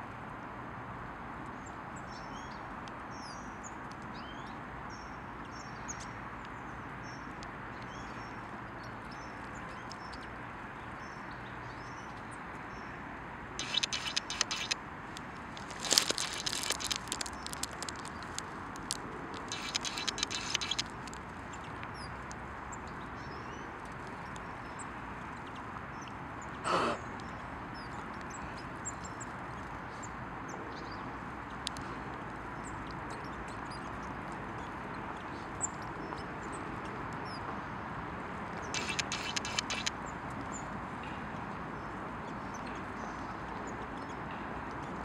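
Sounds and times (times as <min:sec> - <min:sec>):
small birds chirping: 0:01.5 - 0:45.0
rapid high crackling: 0:13.6 - 0:21.3, 0:38.7 - 0:40.0.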